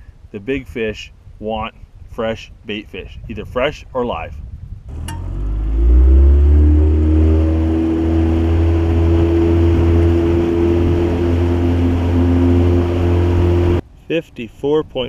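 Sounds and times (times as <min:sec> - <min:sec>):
outboard motor running: 0:04.9 - 0:13.8.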